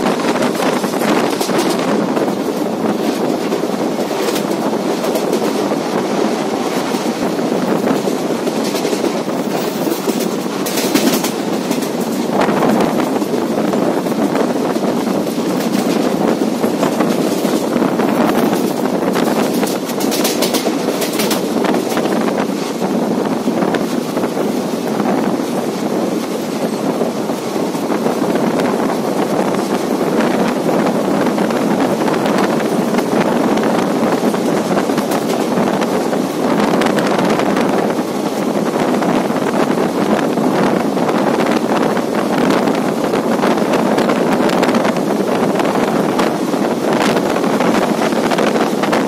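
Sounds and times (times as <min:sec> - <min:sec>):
train clattering: 0:00.0 - 0:49.0
train wheels rumbling on rails: 0:00.0 - 0:49.0
rail-joint clicks: 0:00.1 - 0:22.8, 0:32.4 - 0:36.2.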